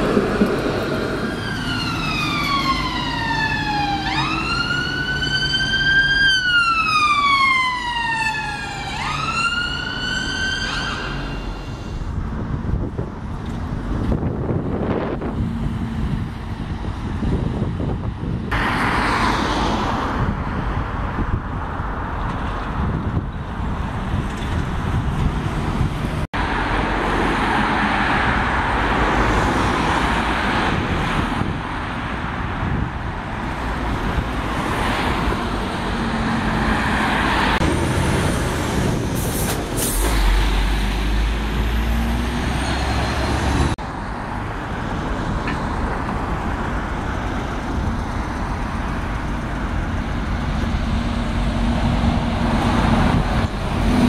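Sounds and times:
buses running by: 0.0s - 54.0s
road traffic passing: 0.0s - 54.0s
wind rumble on microphone: 11.7s - 18.7s, 19.7s - 26.5s, 28.2s - 40.4s, 44.3s - 54.0s.

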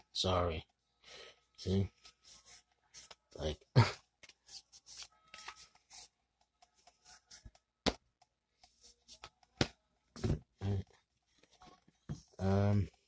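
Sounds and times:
cards being shuffled: 4.2s - 6.1s.

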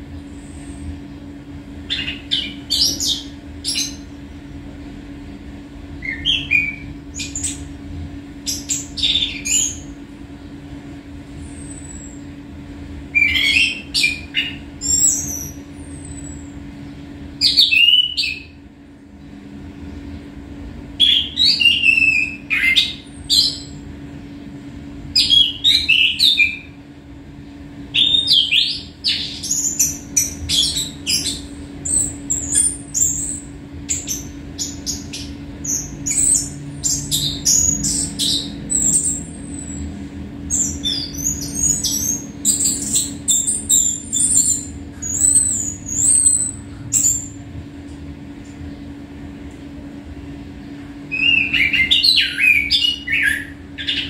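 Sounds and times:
low hum: 26.5s - 54.0s.

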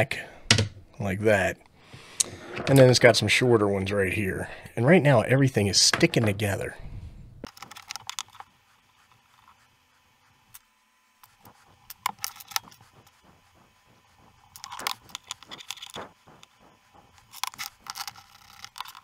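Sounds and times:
small parts clicking and scraping: 7.5s - 8.5s, 11.2s - 13.6s, 14.3s - 19.0s.

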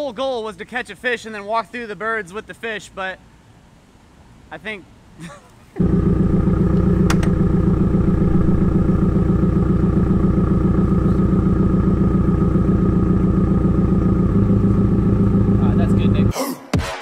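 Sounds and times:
car engine idling: 5.8s - 16.3s
light click: 6.7s - 7.4s.

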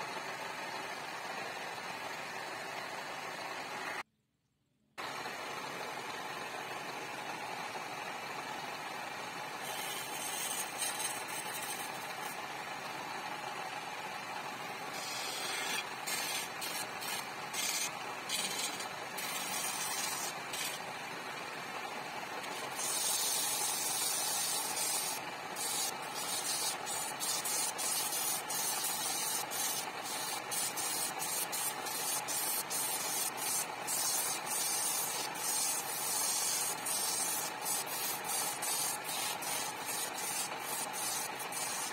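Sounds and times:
wood lathe running: 5.0s - 41.9s
chisel scraping spinning wood: 9.5s - 12.6s, 14.8s - 21.0s, 21.9s - 41.9s.

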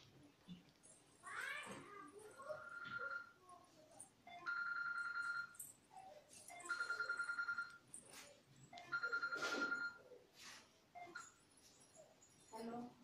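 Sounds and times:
telephone ringing: 2.4s - 3.4s, 4.2s - 5.8s, 6.5s - 7.9s, 8.7s - 10.2s.

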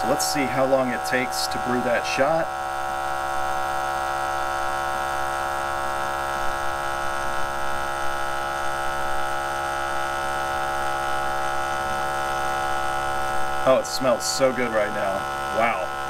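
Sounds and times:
espresso machine pump humming: 0.0s - 16.0s.

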